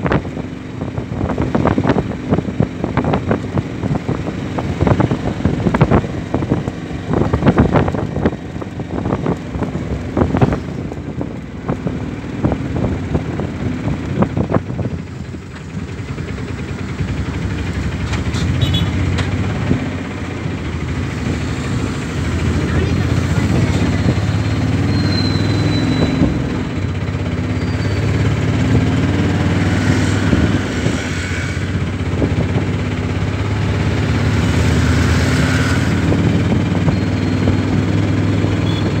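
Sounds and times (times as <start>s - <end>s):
small engine running: 15.1s - 24.7s
knocks and rattles from the body: 17.1s - 20.4s.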